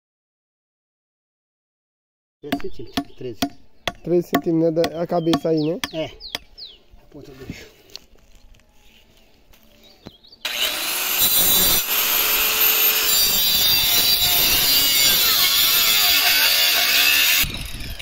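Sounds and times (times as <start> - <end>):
circular saw cutting wood: 10.4 - 18.0.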